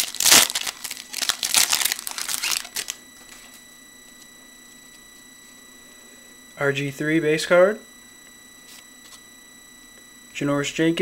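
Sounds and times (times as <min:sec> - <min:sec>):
wrapper crinkling and tearing: 0:00.0 - 0:03.0
high-pitched computer fan whine: 0:00.0 - 0:11.0.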